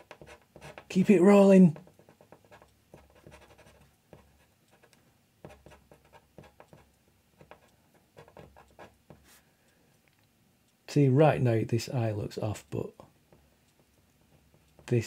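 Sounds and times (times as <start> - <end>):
pen scratching on paper: 0.0 - 1.1, 1.7 - 9.4.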